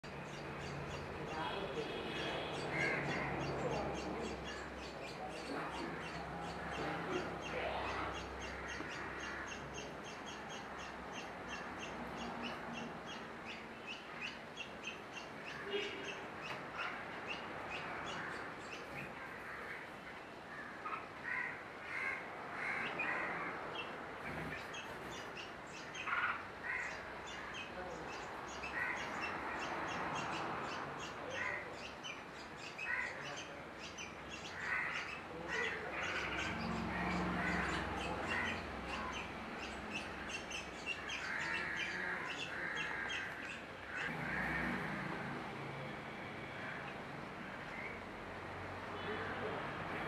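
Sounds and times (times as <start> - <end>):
bulbuls calling: 0.0 - 45.2.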